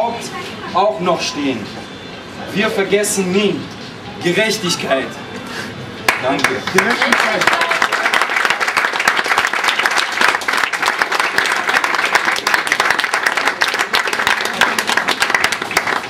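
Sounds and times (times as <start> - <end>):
crowd applauding: 6.1 - 16.0.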